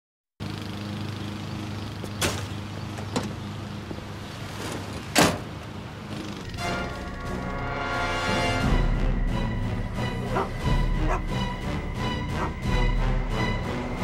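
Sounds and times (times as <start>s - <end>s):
steady engine hum: 0.4s - 14.0s
truck door slamming shut: 5.1s - 5.5s.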